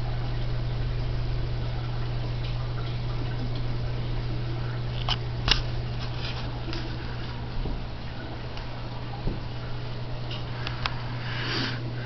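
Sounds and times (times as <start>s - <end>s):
aquarium pump hum: 0.0s - 12.0s
watery hiss of filter: 10.4s - 12.0s.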